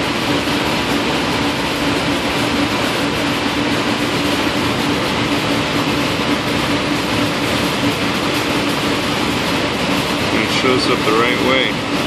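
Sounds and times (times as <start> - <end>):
cooling fans and air conditioning: 0.0 - 12.0.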